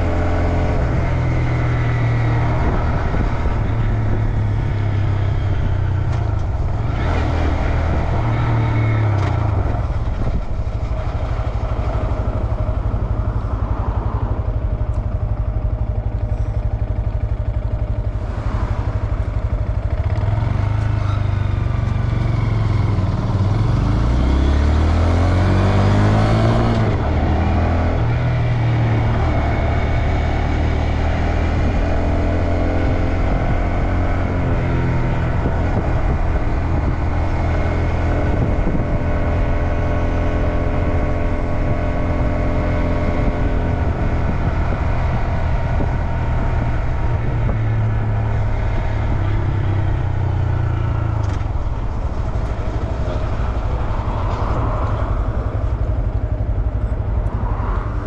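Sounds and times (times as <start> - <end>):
motorcycle engine: 0.0 - 58.0.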